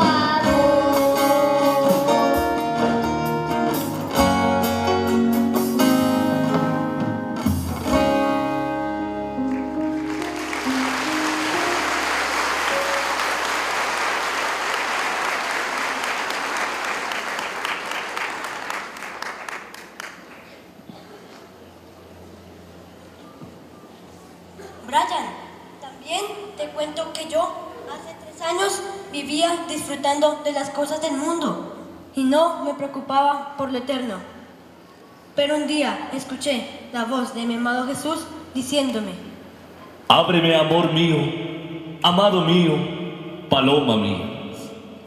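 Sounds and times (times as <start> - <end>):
song with guitar: 0.0 - 13.3
audience applause: 9.4 - 20.7.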